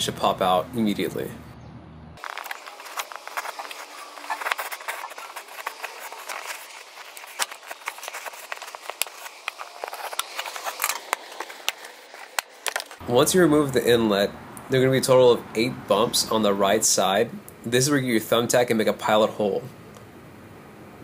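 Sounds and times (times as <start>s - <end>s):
plastic cover clicking and crackling: 2.2s - 13.0s.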